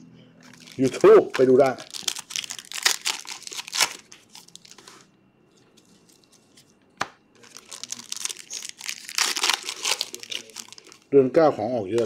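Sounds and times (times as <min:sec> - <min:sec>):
plastic wrapper crinkling and tearing: 0:00.4 - 0:05.1, 0:07.4 - 0:11.1.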